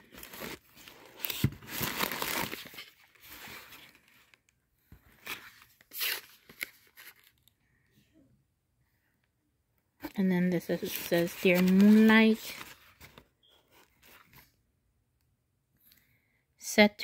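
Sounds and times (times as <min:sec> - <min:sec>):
plastic packaging rustling: 0:00.0 - 0:07.5, 0:10.6 - 0:14.4.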